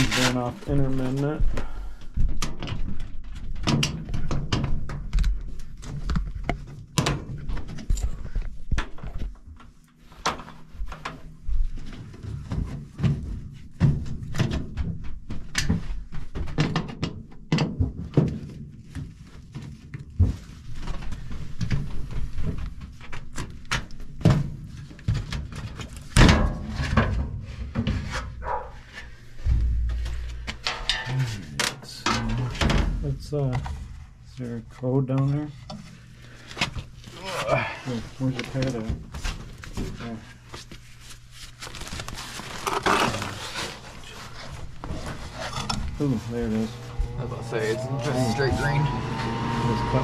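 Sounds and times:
metal clatter: 0:29.4 - 0:32.5
metal panels clunking and rattling: 0:29.4 - 0:33.1.

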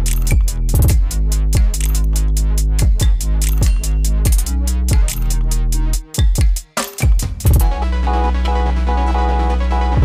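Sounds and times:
deep bass notes: 0:00.0 - 0:06.0, 0:07.4 - 0:10.0
fast drum beat: 0:00.0 - 0:07.7.

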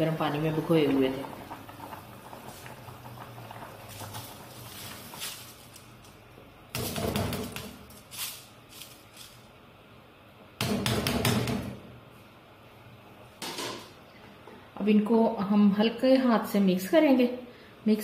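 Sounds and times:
rice pouring into boiling stock: 0:00.5 - 0:06.0.

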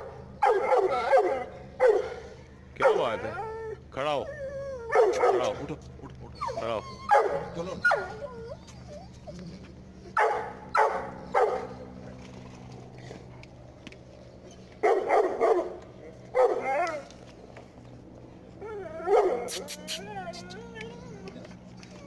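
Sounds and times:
dog barking: 0:00.4 - 0:02.2, 0:04.9 - 0:05.6, 0:07.1 - 0:08.2, 0:10.2 - 0:11.7, 0:14.8 - 0:15.8, 0:16.4 - 0:16.7.

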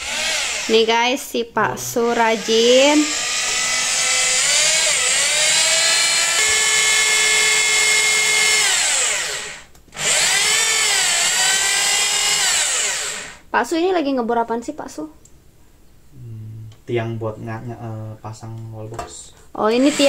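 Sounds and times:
power drill whining: 0:00.0 - 0:01.0, 0:02.1 - 0:13.4, 0:19.8 - 0:20.0.

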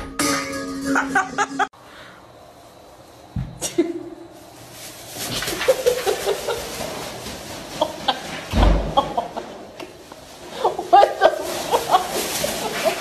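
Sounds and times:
person laughing: 0:00.8 - 0:01.7
plastic bag rustling: 0:04.2 - 0:13.0.

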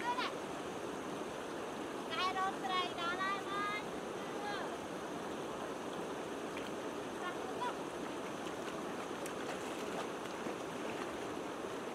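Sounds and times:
river current rushing: 0:00.0 - 0:11.9
person wading through water: 0:08.1 - 0:11.8.

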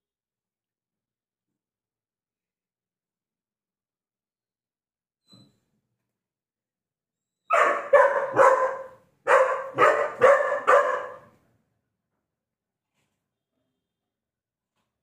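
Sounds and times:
puppy barking: 0:07.5 - 0:11.4.

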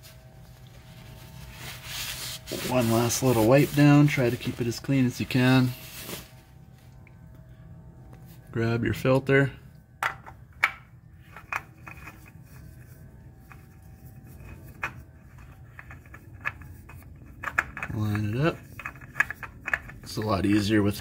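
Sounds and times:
low steady hum: 0:00.0 - 0:21.0
cloth rag rubbing on metal: 0:00.6 - 0:06.4.

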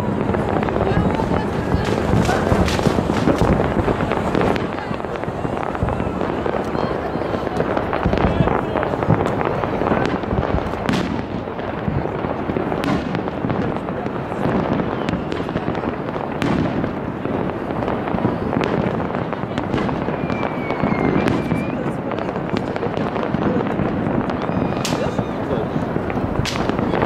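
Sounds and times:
firework whistle: 0:00.0 - 0:11.2, 0:18.2 - 0:23.1, 0:23.8 - 0:27.0
fireworks bangs: 0:00.0 - 0:27.0
fireworks crackling and popping: 0:00.0 - 0:27.0.

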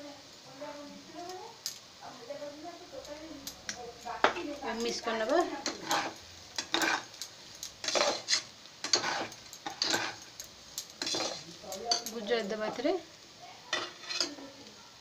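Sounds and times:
metal spatula scraping a pot: 0:05.5 - 0:07.2, 0:07.8 - 0:12.1, 0:13.7 - 0:14.5.

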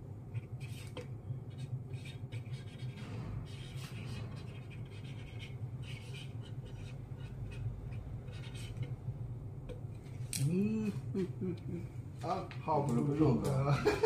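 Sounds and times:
steady low hum: 0:00.0 - 0:14.0
marker scratching on plastic: 0:00.3 - 0:09.0.

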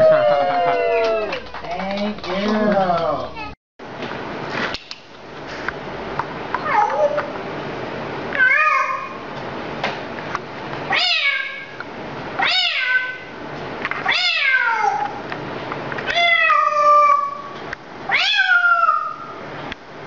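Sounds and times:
parrot mimicking cat meow: 0:06.6 - 0:07.3, 0:08.3 - 0:09.2, 0:10.9 - 0:11.8, 0:12.4 - 0:13.3, 0:14.0 - 0:15.2, 0:16.1 - 0:19.4.

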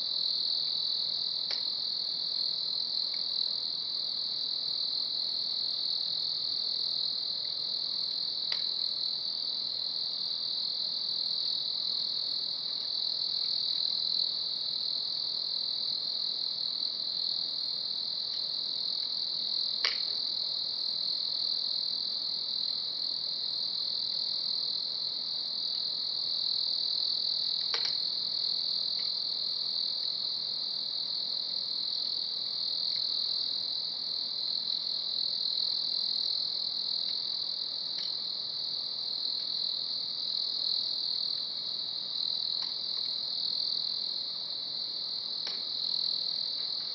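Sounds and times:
night insects chorus: 0:00.0 - 0:46.9.

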